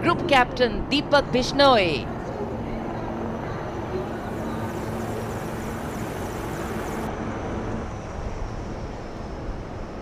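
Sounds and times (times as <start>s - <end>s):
aircraft engine drone: 2.0s - 10.0s
faint low hum: 2.1s - 7.1s
thin high hiss: 4.1s - 7.1s.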